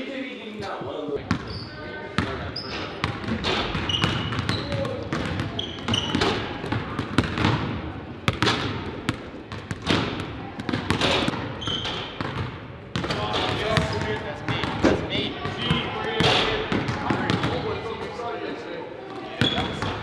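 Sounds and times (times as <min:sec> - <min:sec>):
basketballs bouncing on wood floor: 0:01.2 - 0:01.5, 0:03.0 - 0:17.8
sneaker squeaks: 0:01.3 - 0:06.6, 0:10.9 - 0:12.4, 0:19.3 - 0:20.0.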